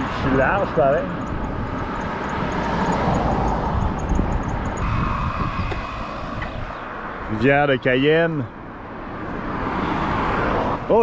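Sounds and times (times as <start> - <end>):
wind rumble on microphone: 0.0 - 7.8
vehicle passing: 0.0 - 10.9.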